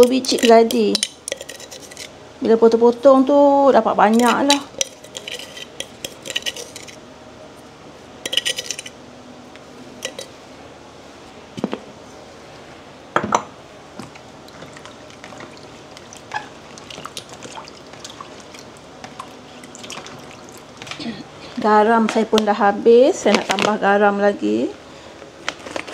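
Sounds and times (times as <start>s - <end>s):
plastic spoon scraping glass jar: 0.2s - 2.1s, 4.2s - 7.0s
hands rubbing food in water: 14.0s - 21.0s
small water splashes: 14.5s - 20.8s.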